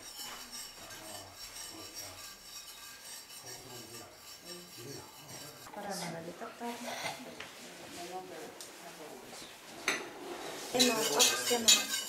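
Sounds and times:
spoon scraping metal pot: 0:00.0 - 0:06.2, 0:10.3 - 0:12.0.

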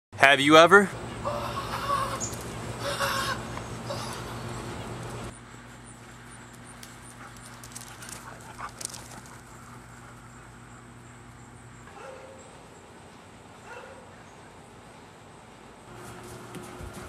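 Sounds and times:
low steady hum: 0:00.8 - 0:17.0.

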